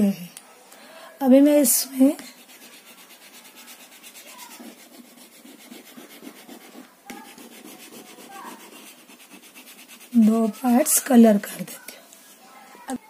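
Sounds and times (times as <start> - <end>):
chalk rubbing on chalkboard: 2.0 - 11.5.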